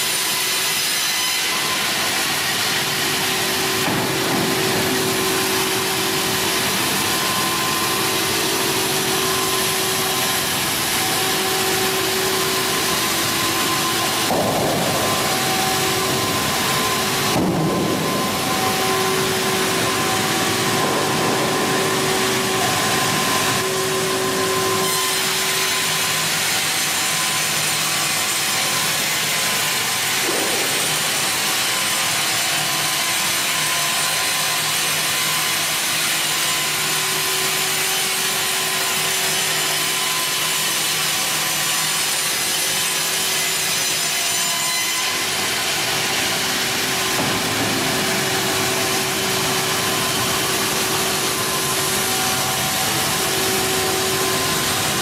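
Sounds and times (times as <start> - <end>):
band saw cutting wood: 0.0 - 55.0
machine motors humming: 3.2 - 26.3.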